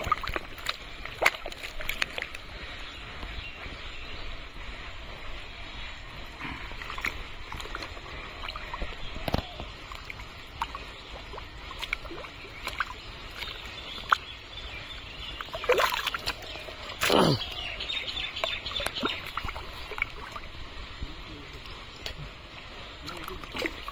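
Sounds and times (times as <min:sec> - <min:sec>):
small wet clicks: 0:00.0 - 0:03.3, 0:06.8 - 0:14.4, 0:15.2 - 0:20.5
muddy water sloshing: 0:00.0 - 0:23.9
loud splashes: 0:15.5 - 0:17.6.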